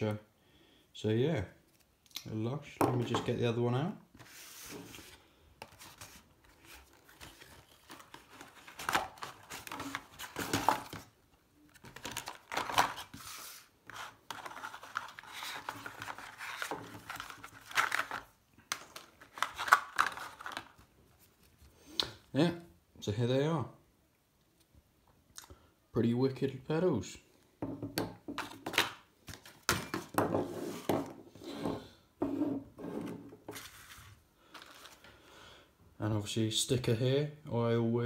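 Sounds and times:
cardboard packaging rustling: 4.2 - 21.6, 33.5 - 35.1.

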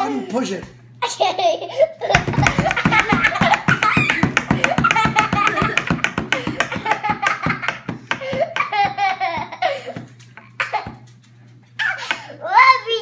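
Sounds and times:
toddler laughing: 1.0 - 11.1.

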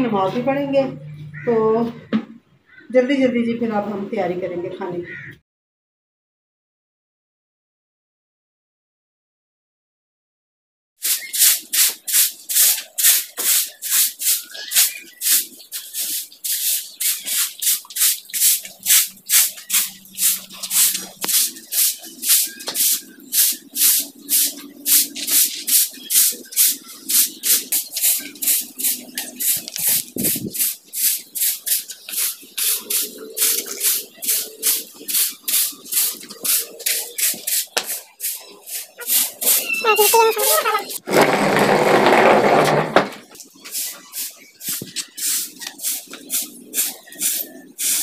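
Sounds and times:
broom sweeping concrete floor: 11.0 - 48.0.

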